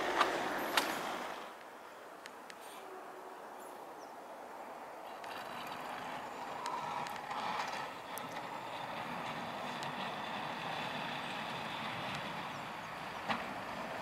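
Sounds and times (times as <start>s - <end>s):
diesel engine: 4.9s - 14.0s
plow blade scraping snow: 5.0s - 14.0s.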